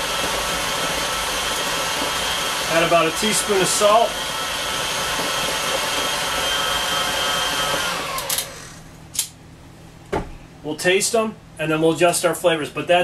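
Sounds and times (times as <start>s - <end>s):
stand mixer motor humming: 0.0s - 8.9s.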